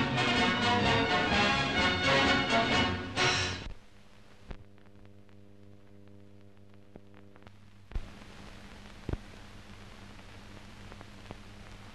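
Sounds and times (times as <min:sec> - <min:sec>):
low hum with faint crackles: 0:03.6 - 0:11.9.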